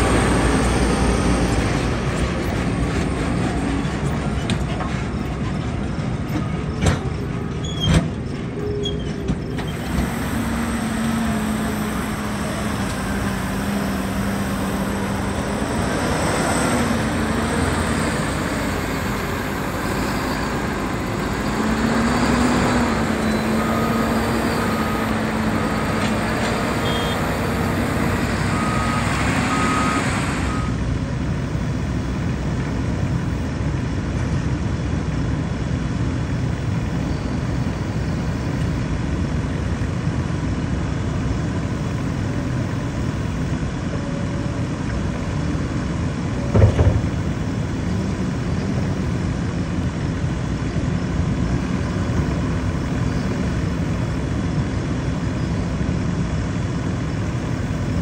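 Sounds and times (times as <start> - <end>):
heavy diesel engines running: 0.0 - 58.0
reversing alarm beeping: 18.4 - 30.8.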